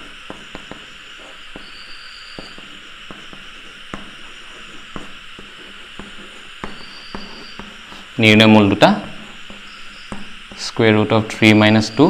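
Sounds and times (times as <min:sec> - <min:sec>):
chalk tapping on blackboard: 0:00.0 - 0:08.1, 0:08.7 - 0:10.8
steady background hiss: 0:00.0 - 0:12.0.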